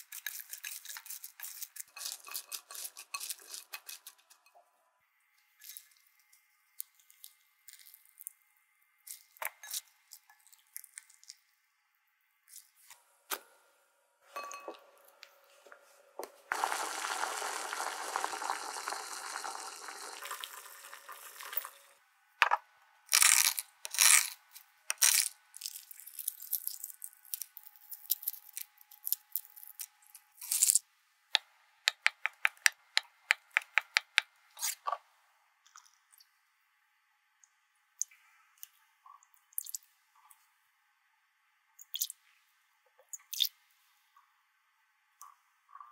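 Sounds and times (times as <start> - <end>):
hands squeezing vegetables: 0.0 - 4.6, 5.5 - 8.4, 9.0 - 11.5, 23.1 - 30.8
water bubbling in a pot: 16.5 - 22.0
knife chopping eggs: 31.9 - 34.3.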